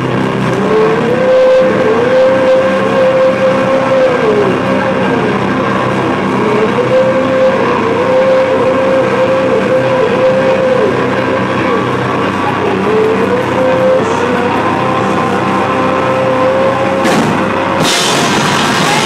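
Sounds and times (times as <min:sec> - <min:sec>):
bass guitar: 0:00.0 - 0:19.0
distorted electric guitar note: 0:00.0 - 0:19.0
drums and cymbals: 0:17.0 - 0:19.0.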